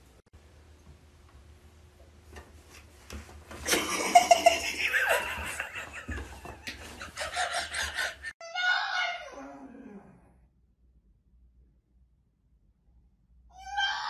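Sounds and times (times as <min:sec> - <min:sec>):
person laughing in gasping bursts: 0:06.8 - 0:08.3.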